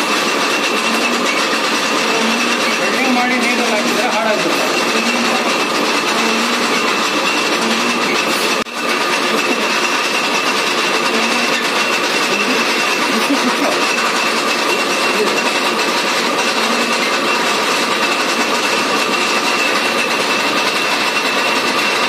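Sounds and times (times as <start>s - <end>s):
metal lathe running: 0.0s - 22.0s
steady machine whine: 0.0s - 22.0s.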